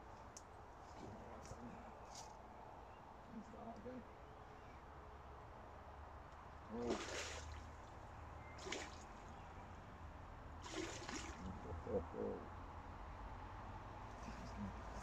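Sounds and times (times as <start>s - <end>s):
fish splashing in water: 6.7s - 9.3s, 10.6s - 11.5s.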